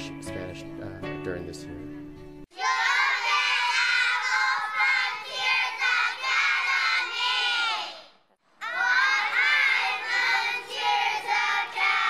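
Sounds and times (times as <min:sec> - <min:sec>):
children calling out: 0:02.5 - 0:12.0.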